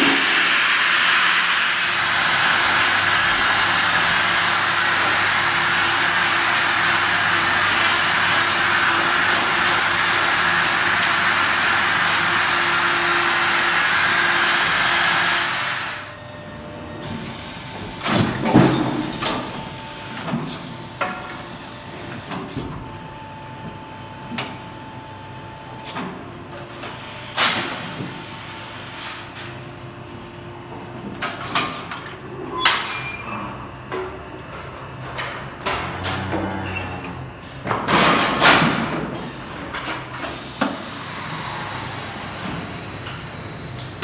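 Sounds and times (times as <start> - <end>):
angle grinder on hoof: 2.1 - 15.9, 35.7 - 37.2.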